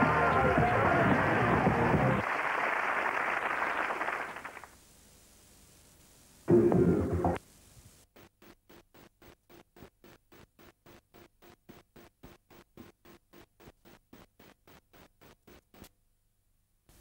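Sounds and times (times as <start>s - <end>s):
pulsing videotape hiss: 4.4s - 15.9s
channel ident music: 6.5s - 7.4s.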